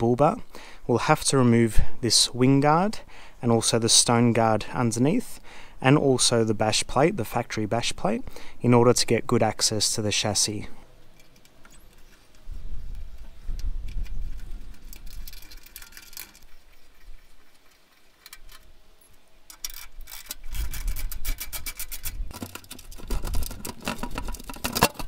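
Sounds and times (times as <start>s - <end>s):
clicks and rattles: 11.2s - 18.7s, 19.5s - 25.0s
plastic panel rubbing and bumping: 20.5s - 25.0s.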